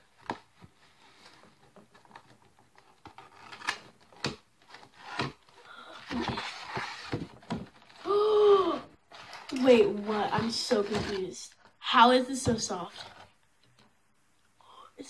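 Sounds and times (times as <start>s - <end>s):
cardboard rustling and scraping: 0.1s - 8.1s, 9.1s - 11.5s, 12.4s - 13.4s.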